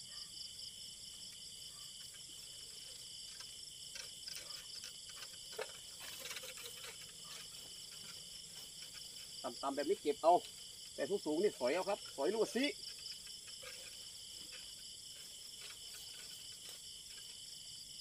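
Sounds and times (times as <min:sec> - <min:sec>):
crickets chirping: 0:00.0 - 0:18.0
rustling leaves: 0:04.3 - 0:17.5.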